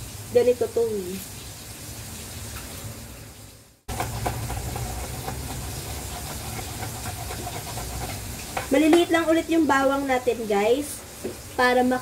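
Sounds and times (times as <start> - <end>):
fish frying in oil: 0.0 - 12.0
knife chopping on cutting board: 3.9 - 9.2.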